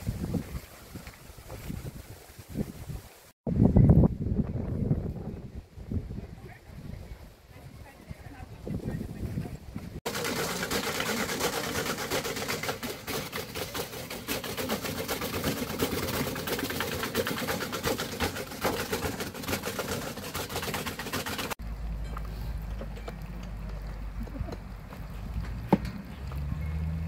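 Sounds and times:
hand-cranked grinder crunching apples: 0:10.1 - 0:21.6.

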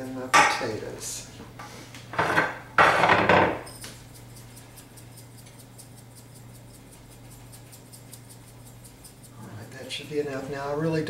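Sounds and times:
salt shaker ticking: 0:03.7 - 0:10.4.

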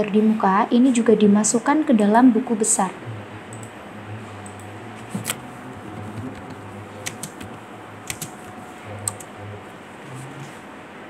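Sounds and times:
low steady hum: 0:00.0 - 0:11.0
computer keyboard keystrokes: 0:05.2 - 0:09.3.

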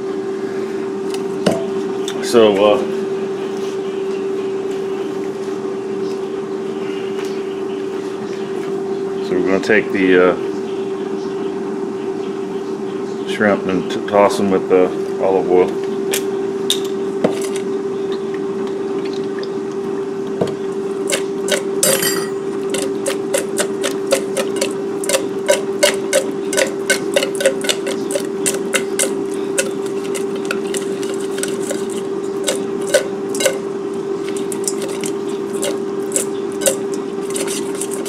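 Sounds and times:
air fryer humming: 0:00.0 - 0:38.0
shrimp slapping in metal bowl: 0:22.7 - 0:33.6, 0:34.2 - 0:38.0.

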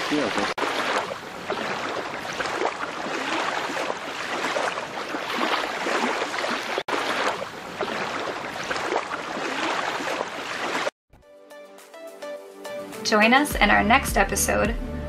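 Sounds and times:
water splashing against boat hull: 0:00.0 - 0:10.9.

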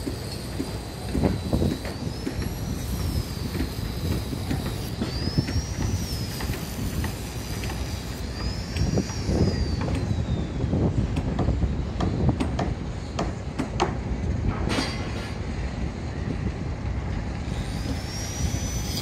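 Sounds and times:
thin high whistle: 0:00.0 - 0:10.7, 0:17.5 - 0:19.0
wind buffeting microphone: 0:00.0 - 0:14.7, 0:15.4 - 0:19.0.

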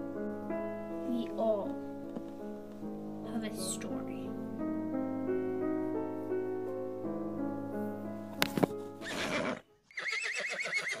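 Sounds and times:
soft keyboard music: 0:00.0 - 0:09.9
horse whinnying: 0:09.0 - 0:11.0.

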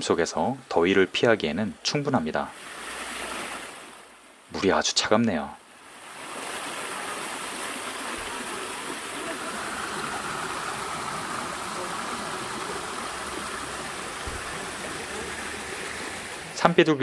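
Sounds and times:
water rushing over rocks: 0:02.4 - 0:04.2, 0:05.7 - 0:17.0.

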